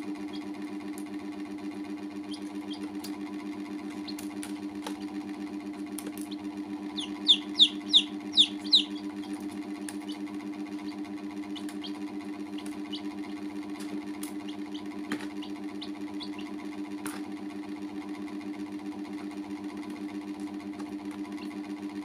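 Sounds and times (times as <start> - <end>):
baby chicks peeping: 0.0 - 0.6, 2.1 - 5.1, 6.0 - 17.2, 21.2 - 21.6
steady low hum: 0.0 - 21.6.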